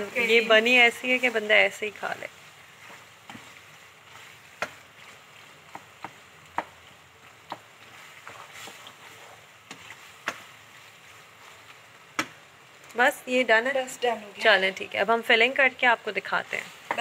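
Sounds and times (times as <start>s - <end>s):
spoon stirring thick filling: 0.3s - 12.5s.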